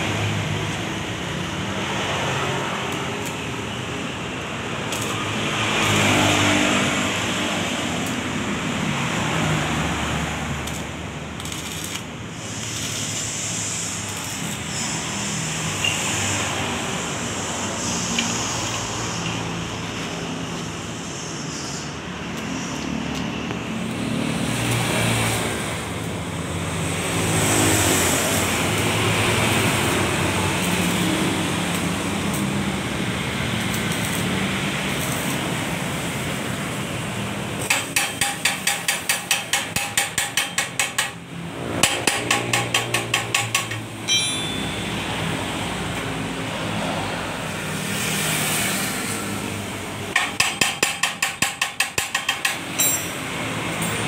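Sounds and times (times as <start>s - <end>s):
welding arc crackling and hissing: 0.0s - 44.0s, 44.7s - 53.8s
chipping hammer knocking on metal: 50.2s - 53.0s.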